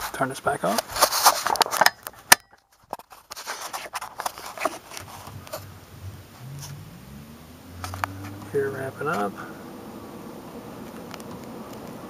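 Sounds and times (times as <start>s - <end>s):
blower motor hum rising in pitch: 5.3s - 10.8s.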